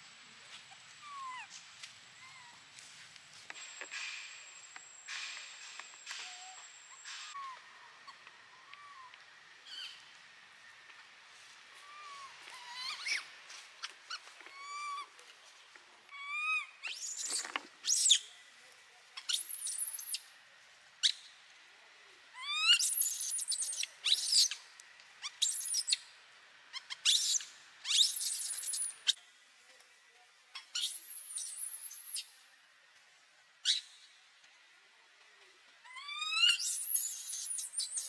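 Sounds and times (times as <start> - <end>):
baby monkey screaming: 1.0 - 1.5, 6.3 - 9.8, 11.8 - 13.3, 14.1 - 15.1, 16.1 - 18.2, 22.4 - 24.6, 26.7 - 28.9, 35.8 - 38.0
baby monkey cooing: 14.5 - 15.1, 35.8 - 37.7.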